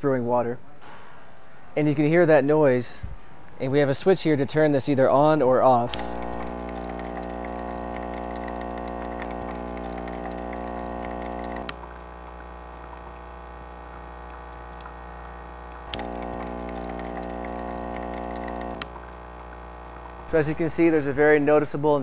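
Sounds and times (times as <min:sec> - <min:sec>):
coffee machine pump humming: 0:05.7 - 0:21.7
switch click: 0:05.9 - 0:06.3.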